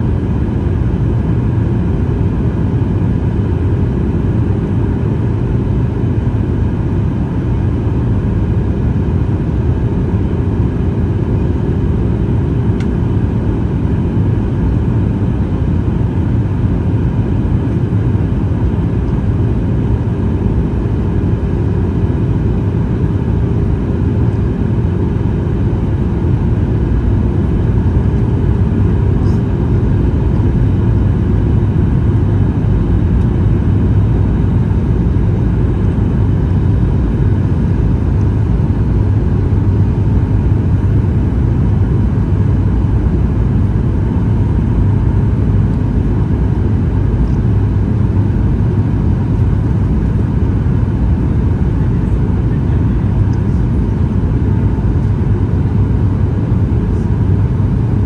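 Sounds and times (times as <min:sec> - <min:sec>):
jet engines humming: 0:19.2 - 0:48.4.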